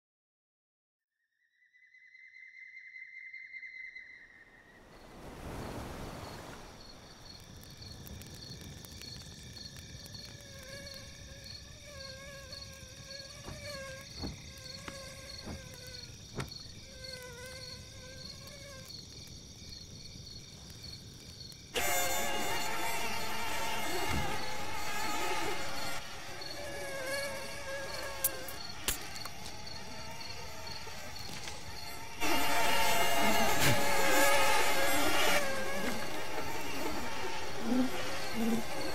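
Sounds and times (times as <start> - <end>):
crickets chirping: 1.6 - 38.9
campfire crackling and popping: 5.1 - 24.9, 28.2 - 37.9.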